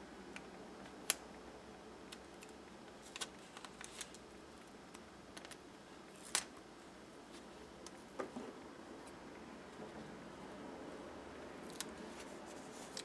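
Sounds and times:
paper rustling: 2.4s - 4.2s, 11.7s - 13.0s.

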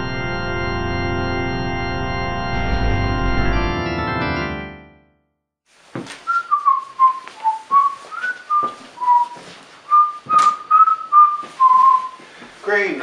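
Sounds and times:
person whistling a tune: 6.2s - 12.2s.

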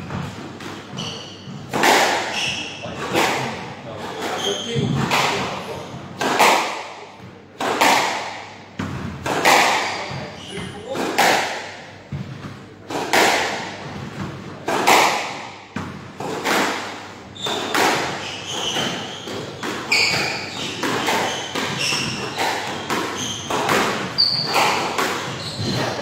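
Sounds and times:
shoe squeaks on wooden floor: 0.8s - 3.3s, 4.0s - 5.9s, 9.8s - 10.9s, 17.3s - 26.0s
squash ball thuds: 4.5s - 26.0s.

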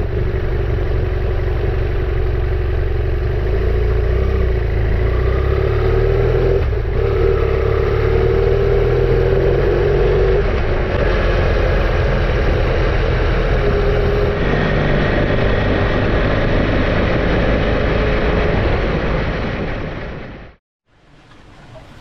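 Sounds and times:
motorcycle engine running: 0.0s - 20.4s
wind noise on microphone: 10.0s - 20.5s.

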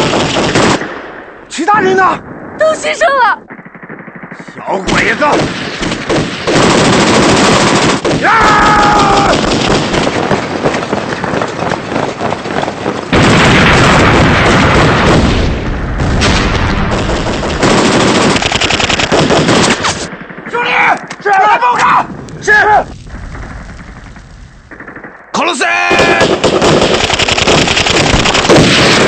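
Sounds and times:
rifle and machine gun fire: 0.0s - 1.3s, 3.4s - 20.9s, 23.0s - 29.0s
person shouting: 8.2s - 9.4s, 20.6s - 22.9s, 25.6s - 26.3s.

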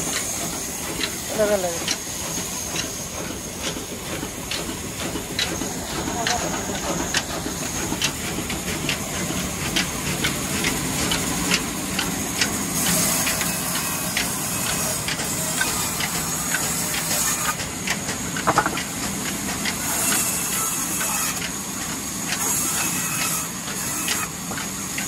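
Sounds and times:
diesel engine running: 0.0s - 11.2s
band saw cutting log: 0.0s - 25.0s.

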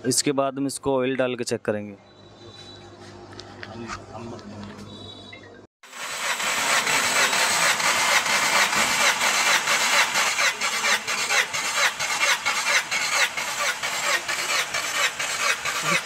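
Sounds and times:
engine cranking on starter motor: 5.8s - 16.0s.

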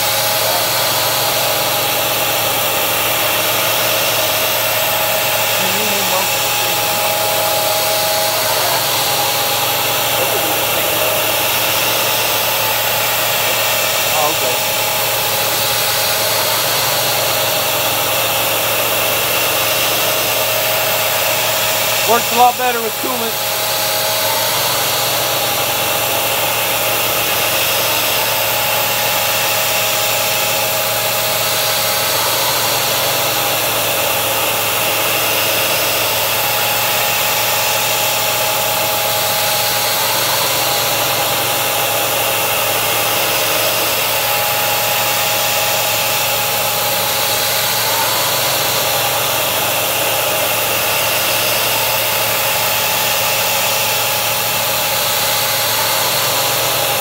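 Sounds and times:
end mill cutting tone: 0.0s - 57.0s
mist coolant sprayer hissing: 0.0s - 57.0s.

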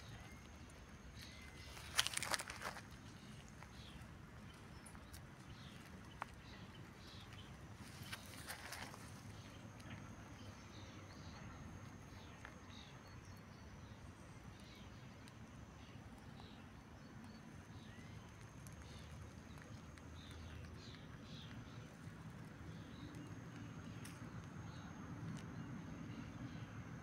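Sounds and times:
faint steady high tone: 0.0s - 2.2s.

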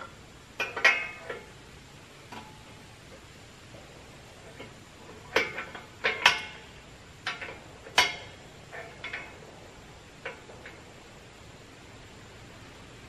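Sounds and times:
steel clanks with metallic ring: 0.0s - 1.5s, 4.4s - 9.4s.

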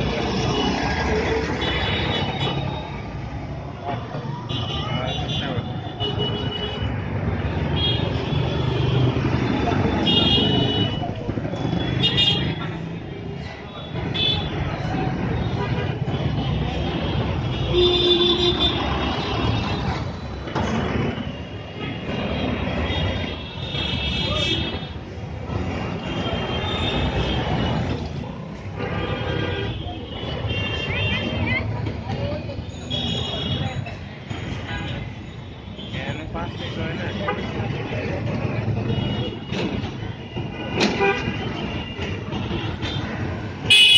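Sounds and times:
traffic passing close by: 0.0s - 43.9s
vehicle engines rumbling: 0.0s - 43.9s
vehicle horn: 43.6s - 43.9s.

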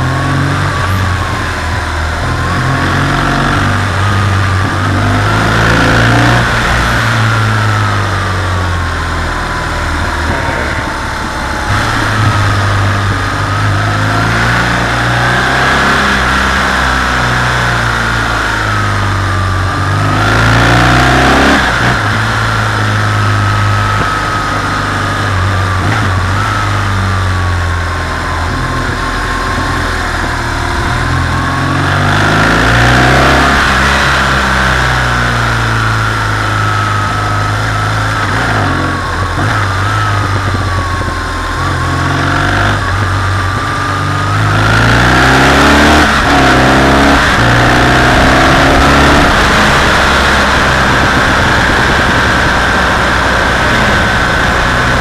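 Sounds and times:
motorcycle engine revving: 0.0s - 55.0s
wind rushing: 10.3s - 16.4s.

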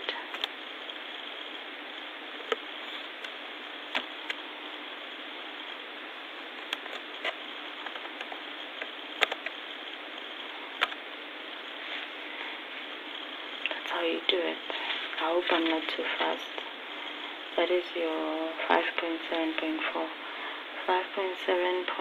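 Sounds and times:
microphone hiss: 0.0s - 22.0s
keyboard and mouse clicks: 6.6s - 9.6s, 10.8s - 11.0s.

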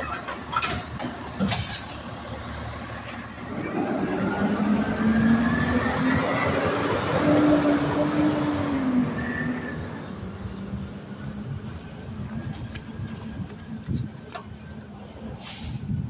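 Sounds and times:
garbage truck engine accelerating: 0.0s - 15.4s.

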